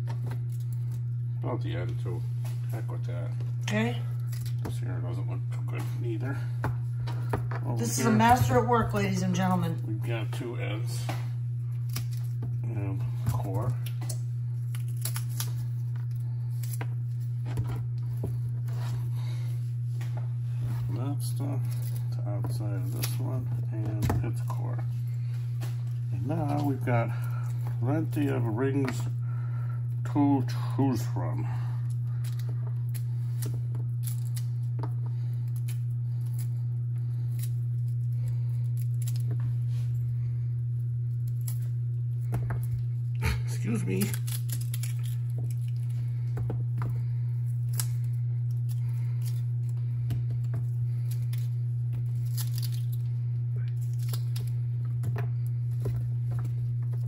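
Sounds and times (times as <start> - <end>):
low hum: 0.0 - 57.0
onion crackling being pulled apart: 11.6 - 12.6, 13.3 - 18.0, 21.3 - 23.5, 31.8 - 40.0, 40.7 - 57.0.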